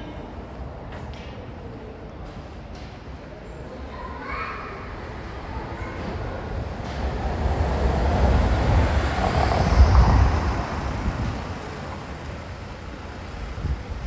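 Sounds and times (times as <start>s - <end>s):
vehicle passing by: 7.0s - 13.4s.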